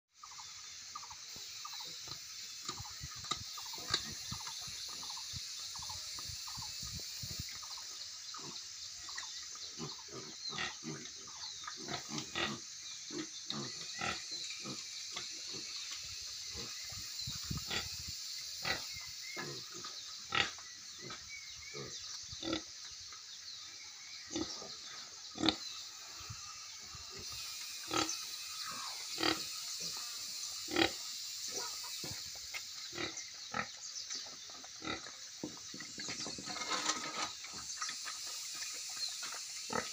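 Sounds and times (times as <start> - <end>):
steady high hiss: 0.1 - 39.9
pigs grunting: 9.7 - 15.7.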